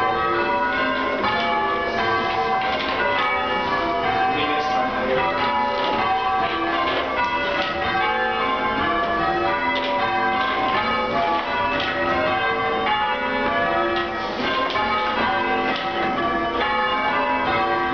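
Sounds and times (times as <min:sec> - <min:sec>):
church bells change ringing: 0:00.0 - 0:17.9.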